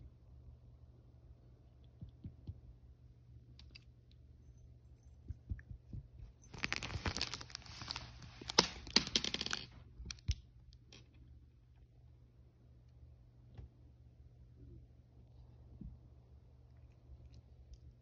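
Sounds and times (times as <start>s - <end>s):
cat claws scratching fabric: 6.2s - 8.9s.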